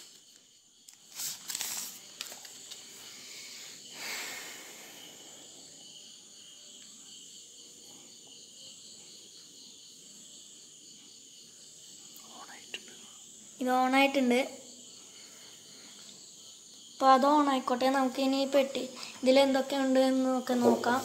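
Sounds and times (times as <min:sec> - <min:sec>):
crickets chirring: 0:00.0 - 0:21.0
phone and wrapping rustling: 0:00.9 - 0:02.9.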